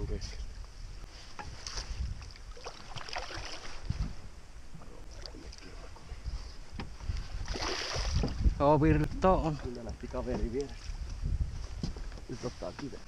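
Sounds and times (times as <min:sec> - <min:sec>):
wind rumble on microphone: 0:00.0 - 0:13.0
water lapping around boat: 0:01.1 - 0:08.6.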